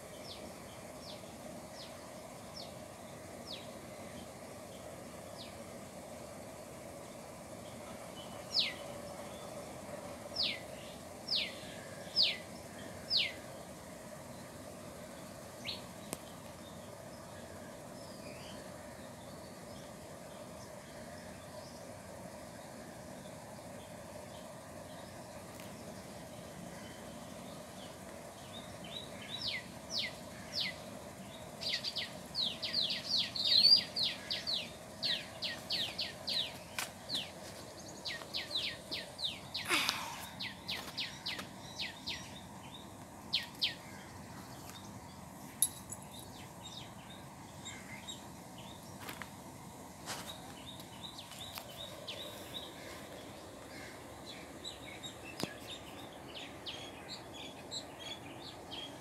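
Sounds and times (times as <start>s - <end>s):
low steady background hum: 0.0s - 59.0s
sparrows chirping: 7.6s - 9.5s, 23.8s - 49.2s, 50.0s - 59.0s.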